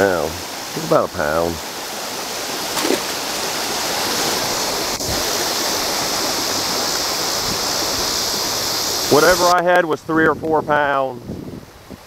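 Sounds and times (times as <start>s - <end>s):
creek water rushing over rocks: 0.0s - 12.0s.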